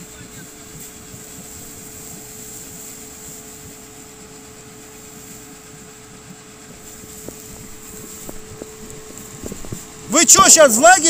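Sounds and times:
suv engine running: 0:00.0 - 0:11.0.

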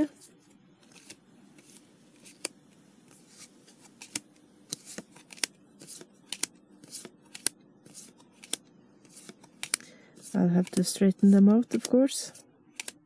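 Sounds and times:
trading cards snapping: 0:03.8 - 0:12.0, 0:12.7 - 0:13.0.

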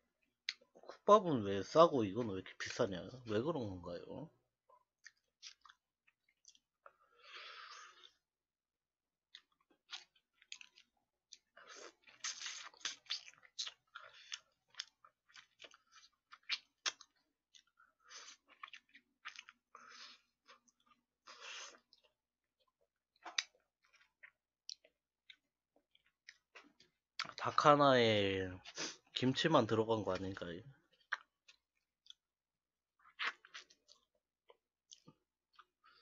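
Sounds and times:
close-miked chewing: 0:09.3 - 0:27.5, 0:30.8 - 0:32.3
wet mouth clicks and smacks: 0:12.1 - 0:15.5.

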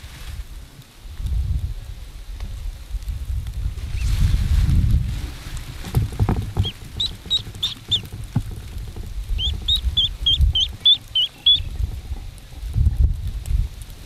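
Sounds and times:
wind rumble on microphone: 0:00.0 - 0:14.0
duckling peeping: 0:06.2 - 0:12.1.

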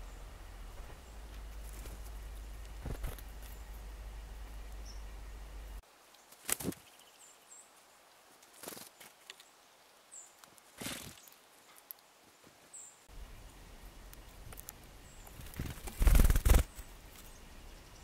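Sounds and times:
low steady rumble: 0:00.0 - 0:05.8, 0:13.1 - 0:15.4
squirrel scrabbling in seed: 0:00.8 - 0:03.7, 0:10.4 - 0:12.0, 0:14.1 - 0:17.3.

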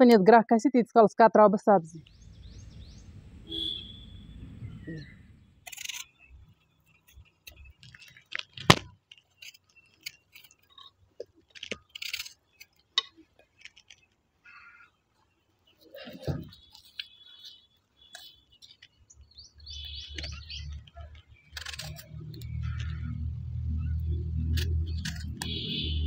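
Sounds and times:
low outdoor rumble: 0:02.0 - 0:05.7, 0:20.3 - 0:26.0.

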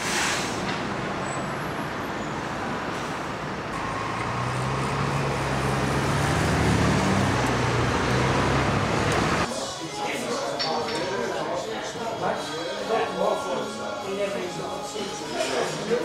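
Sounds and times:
bus engine humming: 0:00.0 - 0:09.5
street traffic: 0:00.0 - 0:09.5.

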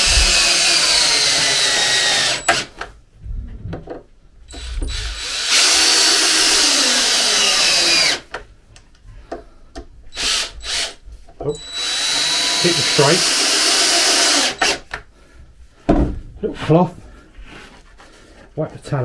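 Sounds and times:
cordless drill driving screws: 0:00.0 - 0:02.9, 0:04.5 - 0:08.3, 0:10.2 - 0:11.0, 0:11.6 - 0:15.0.

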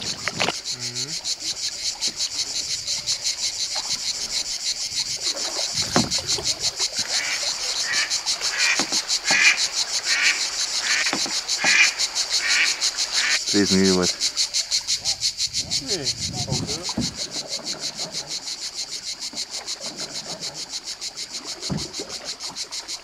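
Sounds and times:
soft low knocks: 0:16.4 - 0:17.5.

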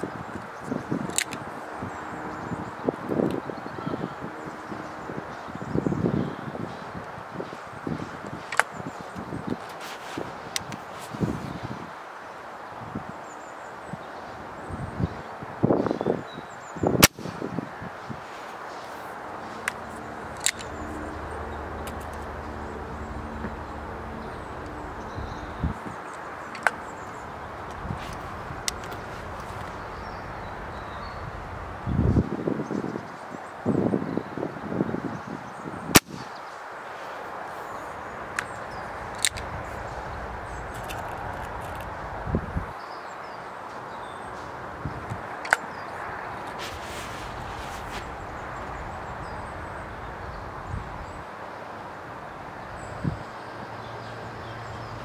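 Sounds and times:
air rifle shot crack: 0:17.0 - 0:17.4, 0:35.9 - 0:36.3.

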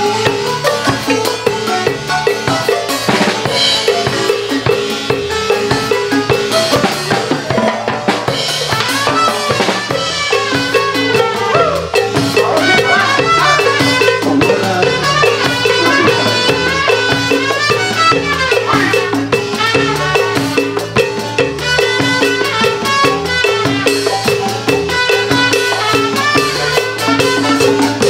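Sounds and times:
marimba band playing: 0:00.0 - 0:28.0
steady bass line: 0:00.0 - 0:28.0.

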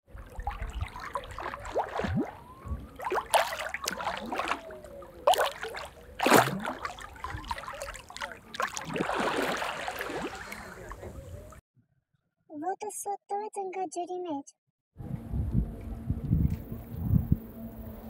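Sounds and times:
water sloshing and gurgling: 0:00.0 - 0:11.6
water splashes: 0:00.0 - 0:11.6.

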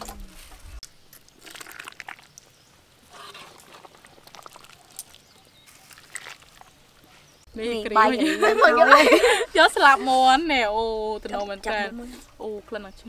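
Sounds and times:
curry pouring: 0:00.9 - 0:07.1
metal ladle scraping: 0:03.0 - 0:06.6.

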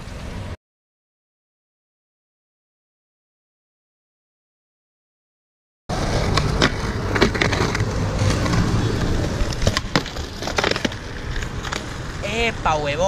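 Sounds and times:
skateboard clacks: 0:05.9 - 0:12.2
skateboard grinding on concrete: 0:05.9 - 0:13.0.

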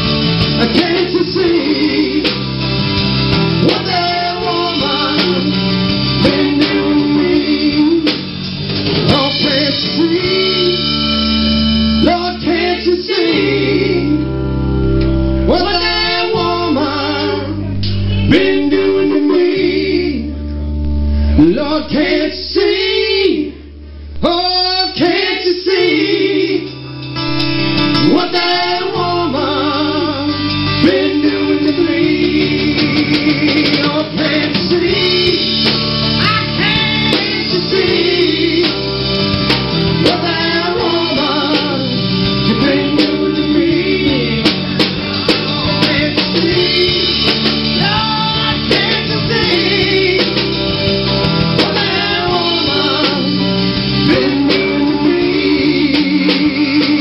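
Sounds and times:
live rock band playing: 0:00.0 - 0:57.0
person singing: 0:14.8 - 0:27.4, 0:28.0 - 0:35.6, 0:36.2 - 0:38.9, 0:45.6 - 0:50.5, 0:51.6 - 0:57.0.

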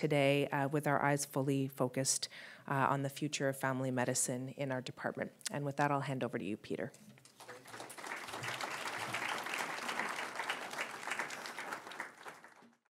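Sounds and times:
audience applauding: 0:07.3 - 0:12.9.

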